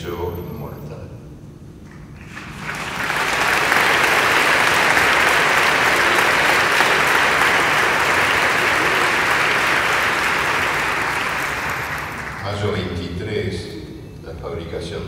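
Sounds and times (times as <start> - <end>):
audience applauding: 1.9 - 13.0.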